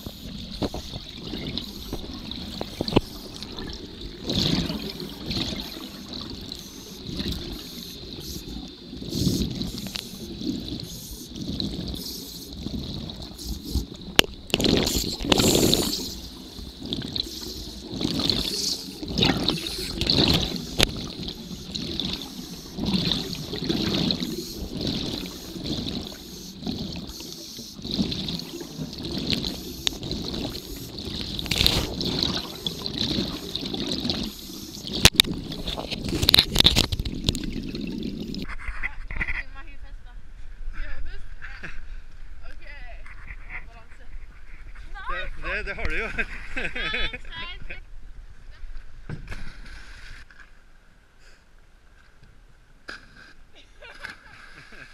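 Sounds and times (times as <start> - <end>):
underwater bubbles gurgling: 0.0 - 38.5.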